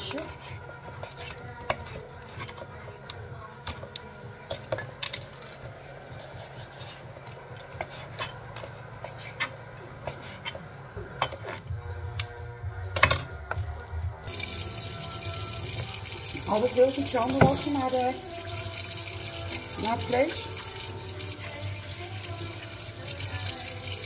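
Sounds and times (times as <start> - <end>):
tap water running into sink: 14.3 - 24.0.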